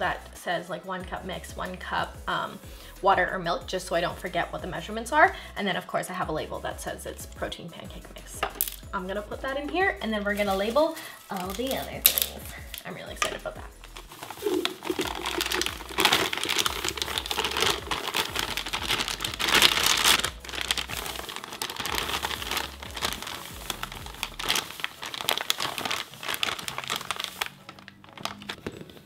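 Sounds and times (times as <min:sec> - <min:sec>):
plastic bag crinkling: 0:10.2 - 0:29.0.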